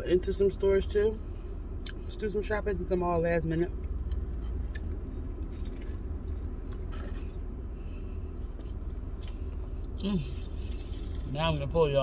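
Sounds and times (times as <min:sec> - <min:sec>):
low car cabin hum: 0:00.0 - 0:12.0
person chewing: 0:01.8 - 0:02.1, 0:03.8 - 0:11.3.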